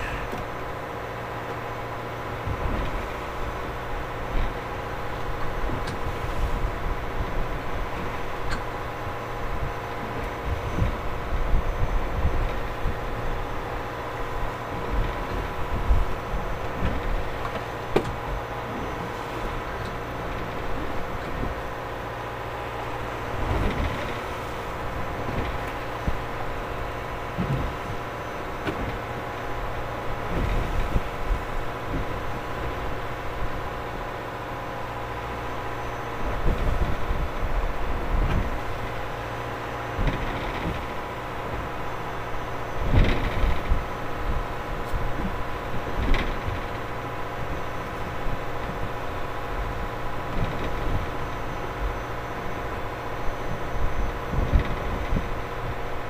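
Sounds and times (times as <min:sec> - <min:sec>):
boat engine droning: 0:00.0 - 0:56.0.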